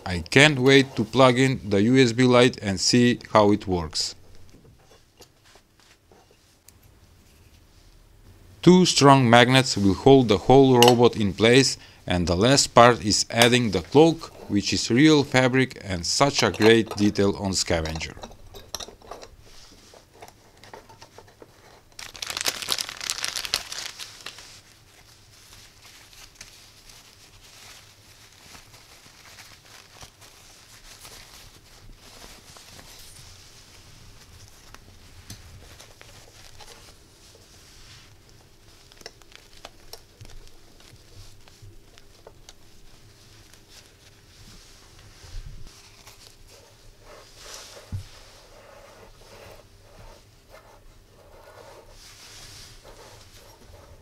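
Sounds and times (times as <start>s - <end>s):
faint steady hum: 0.0s - 54.0s
fabric rustling: 4.3s - 6.6s, 22.0s - 54.0s
plastic bag crinkling: 21.9s - 33.2s.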